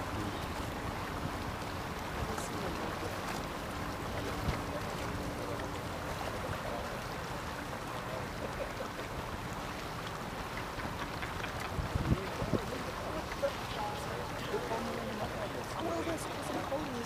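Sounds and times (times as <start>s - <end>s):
boat motor humming: 0.0s - 17.0s
water wash: 0.0s - 17.0s
wind noise: 10.9s - 12.8s.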